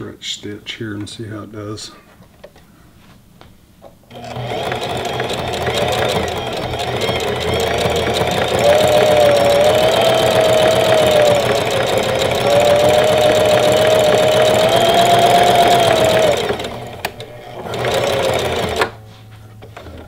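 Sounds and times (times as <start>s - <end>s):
sewing machine running: 4.1s - 19.0s.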